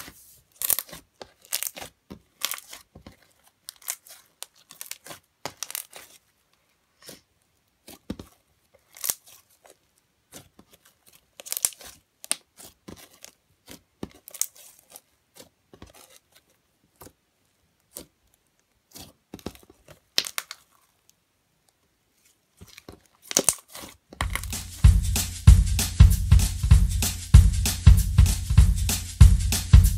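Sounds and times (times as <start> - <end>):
slime squishing and crackling: 0.0 - 6.3, 7.8 - 17.2, 22.6 - 24.0
music with drum beat: 24.2 - 29.9.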